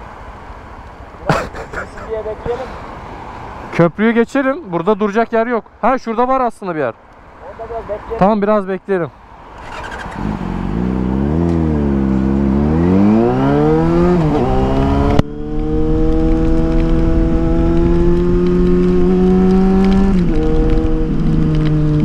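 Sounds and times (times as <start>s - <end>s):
motorcycle engine accelerating: 9.6s - 22.0s.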